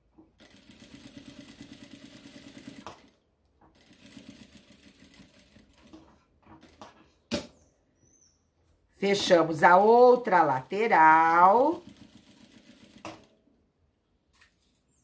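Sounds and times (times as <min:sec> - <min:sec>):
sewing machine stitching: 0:00.4 - 0:07.0, 0:09.5 - 0:13.4.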